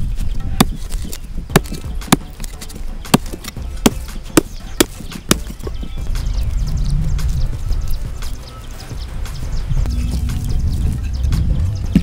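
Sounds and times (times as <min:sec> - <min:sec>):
low rumble: 0:09.6 - 0:12.0.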